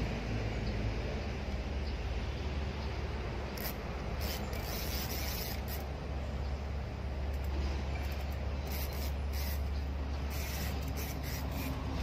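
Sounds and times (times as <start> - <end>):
fishing reel whirring: 3.5 - 6.0, 7.3 - 12.0.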